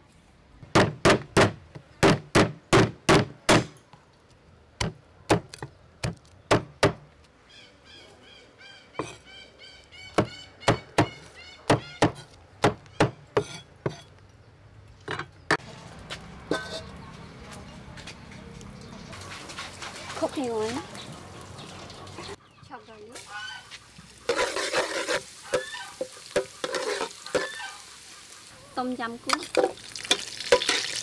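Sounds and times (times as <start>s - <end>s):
cleaver chopping on wooden block: 0.8s - 3.8s.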